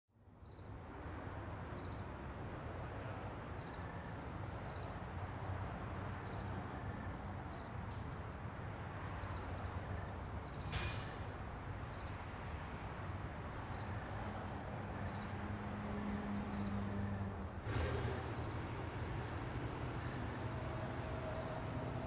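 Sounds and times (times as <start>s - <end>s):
aircraft engine idling: 17.7s - 22.0s.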